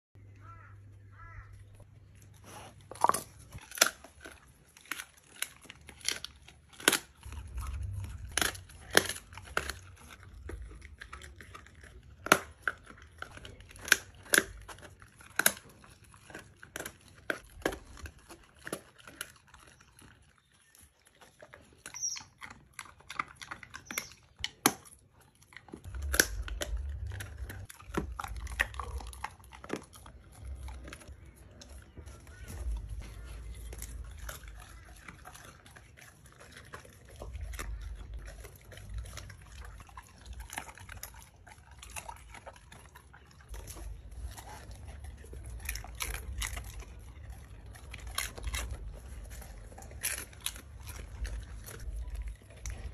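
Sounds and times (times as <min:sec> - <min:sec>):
dog chewing raw meat: 0:00.2 - 0:52.9.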